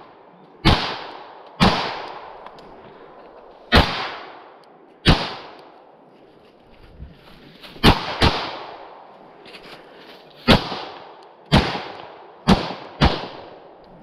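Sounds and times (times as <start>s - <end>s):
pistol shots echoing: 0.6s - 2.5s, 3.7s - 5.7s, 7.8s - 9.1s, 10.5s - 13.7s.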